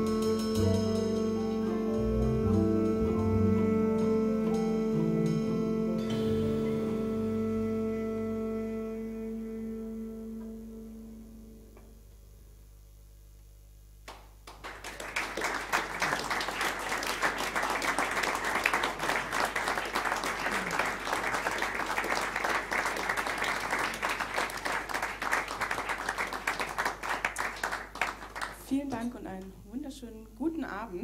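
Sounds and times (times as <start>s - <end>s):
audience applauding: 14.1s - 28.9s.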